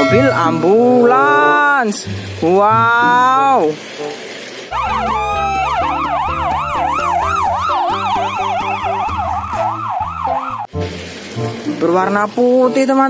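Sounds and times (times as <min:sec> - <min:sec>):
ambulance siren wailing: 0:04.7 - 0:10.7.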